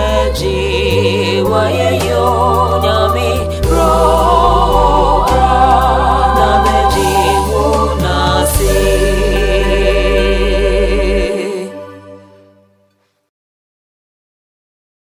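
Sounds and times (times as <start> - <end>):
deep bass: 0.0 - 11.3
voices holding long notes: 0.0 - 12.4
sustained chords: 0.0 - 12.7.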